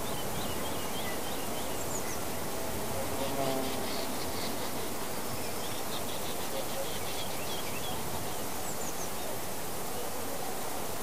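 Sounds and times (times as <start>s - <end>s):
steady background hiss: 0.0s - 11.0s.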